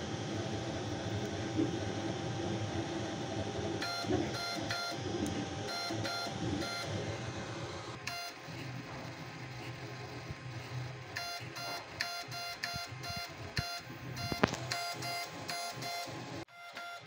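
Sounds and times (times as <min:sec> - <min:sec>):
printer whirring: 0:00.0 - 0:17.0
stepper motor tones: 0:00.0 - 0:17.0.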